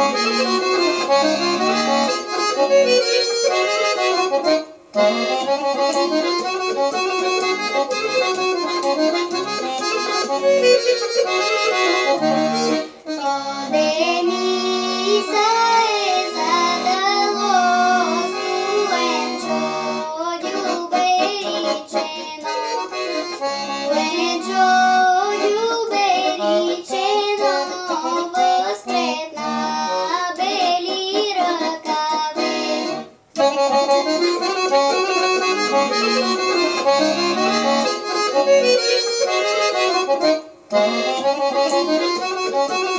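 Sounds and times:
accordion folk melody: 0:00.0 - 0:42.9
girl singing folk song: 0:13.0 - 0:33.2.

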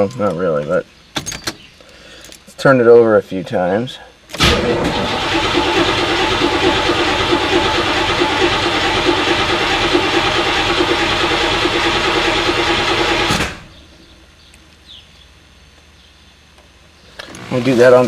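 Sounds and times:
starter motor cranking engine: 0:04.3 - 0:13.7, 0:17.2 - 0:18.0.

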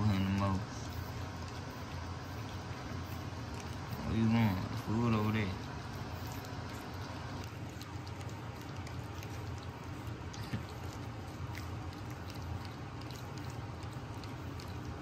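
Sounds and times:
puppies lapping wet food: 0:00.0 - 0:15.0.

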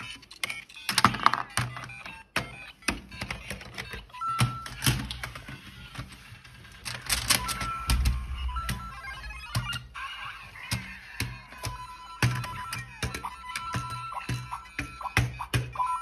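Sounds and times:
toy electronic bleeps and jingles: 0:00.0 - 0:05.2, 0:07.3 - 0:16.0
plastic clicks and clacks: 0:00.0 - 0:16.0
held electronic beep: 0:07.4 - 0:10.1.

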